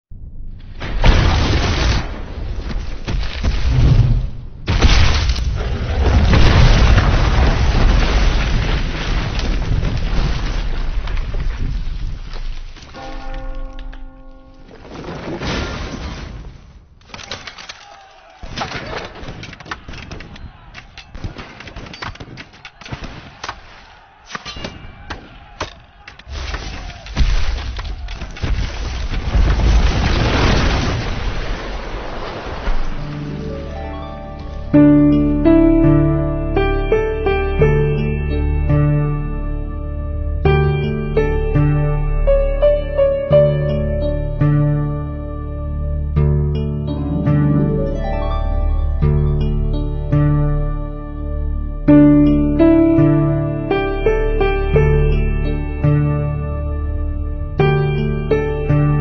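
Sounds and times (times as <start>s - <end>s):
boulder rumbling and crashing: 0.4s - 13.7s, 14.6s - 17.0s, 26.3s - 33.8s.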